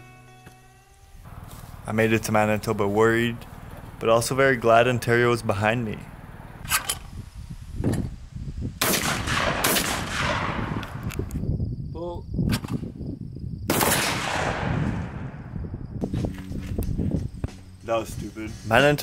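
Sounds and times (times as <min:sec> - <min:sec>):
shotgun blasts with echo: 0:08.8 - 0:11.1, 0:13.7 - 0:15.5.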